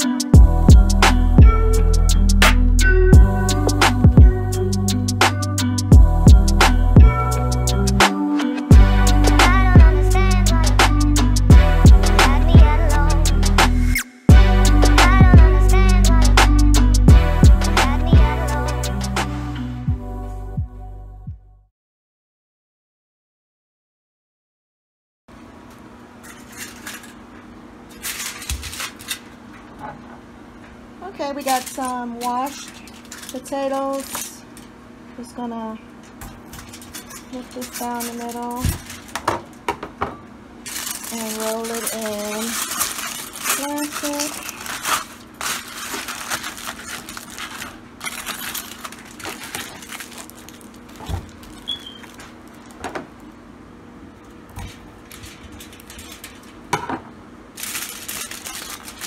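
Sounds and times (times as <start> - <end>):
steady low hum: 0.4 - 8.0, 8.7 - 21.1
aluminium foil crinkling: 26.2 - 30.0, 31.1 - 34.8, 36.0 - 39.6, 40.6 - 53.0, 54.3 - 56.8, 57.6 - 59.0.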